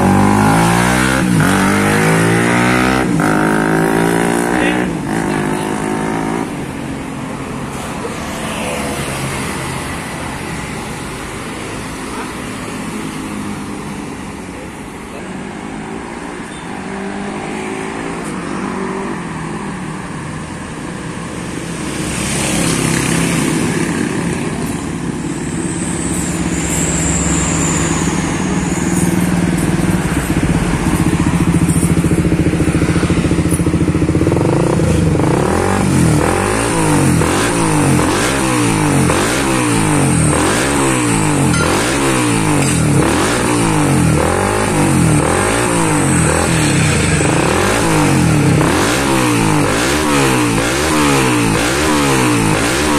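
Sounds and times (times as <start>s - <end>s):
motorcycle engine running: 29.2s - 52.9s
engine revving in throttle blips: 34.2s - 52.9s.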